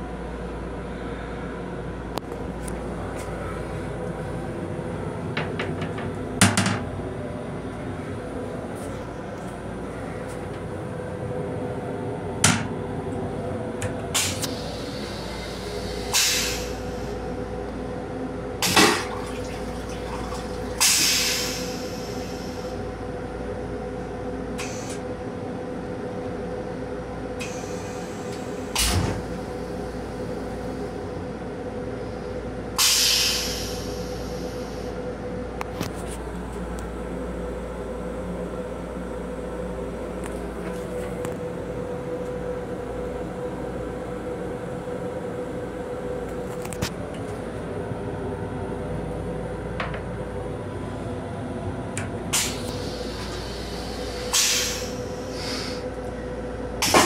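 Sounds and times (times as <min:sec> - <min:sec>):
railcar hum: 0:00.0 - 0:57.0
short hissing rushes: 0:52.4 - 0:55.8.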